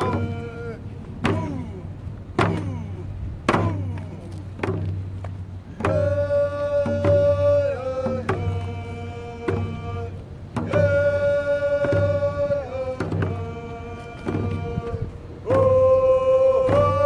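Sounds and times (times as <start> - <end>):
drum beating slowly: 0.0 - 17.0
person singing long notes: 5.8 - 17.0.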